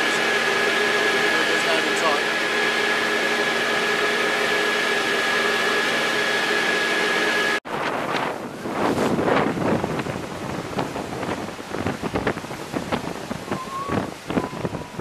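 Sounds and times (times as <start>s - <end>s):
boat engine running: 0.0s - 15.0s
sea wash: 0.0s - 15.0s
wind buffeting microphone: 7.6s - 15.0s.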